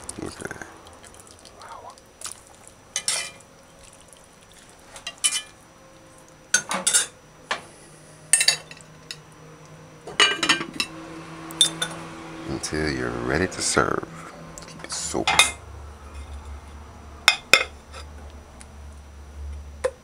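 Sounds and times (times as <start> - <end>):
metal spoon clinking on pot: 3.0 - 3.4, 5.0 - 5.5, 8.3 - 9.2.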